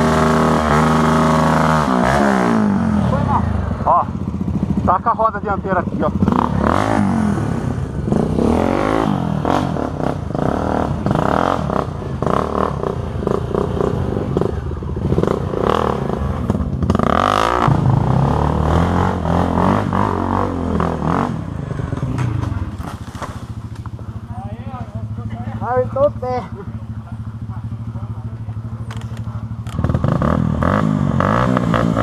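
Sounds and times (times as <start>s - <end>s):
dirt bike engine revving: 0.0s - 32.0s
bike rattling: 21.6s - 30.8s.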